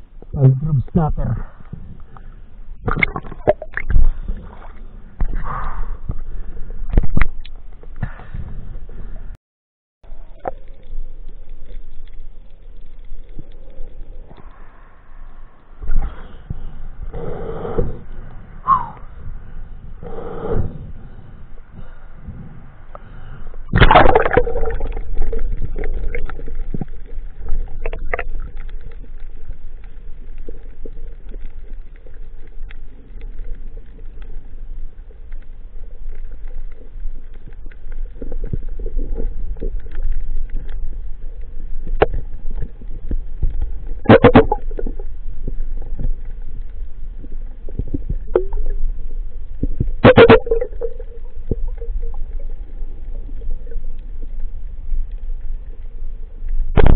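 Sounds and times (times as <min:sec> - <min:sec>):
underwater rumble: 0:00.0 - 0:09.4, 0:10.0 - 0:56.9
splashing and bubbles: 0:02.7 - 0:08.6, 0:10.1 - 0:15.2, 0:23.6 - 0:55.8.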